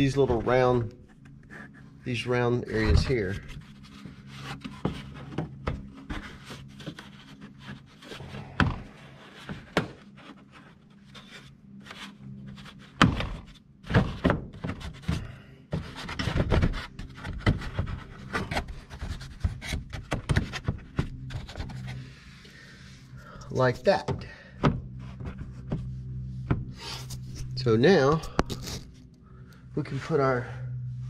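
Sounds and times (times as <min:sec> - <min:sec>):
low hum: 0:00.0 - 0:13.8, 0:16.9 - 0:31.0
plastic liner rubbing and scraping: 0:02.9 - 0:22.2.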